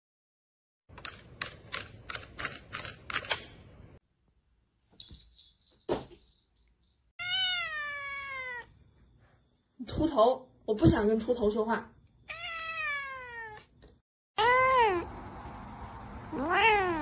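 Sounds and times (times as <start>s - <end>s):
cat meowing: 7.2s - 8.7s, 12.3s - 13.7s, 16.3s - 17.0s.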